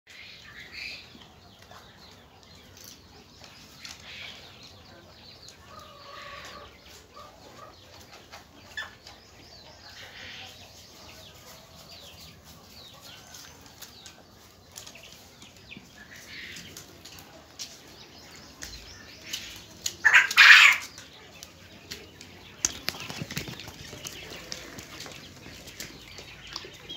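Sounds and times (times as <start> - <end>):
small scratching sounds: 1.2 - 26.9
quail calling: 20.0 - 20.9
wings flapping: 22.6 - 26.2.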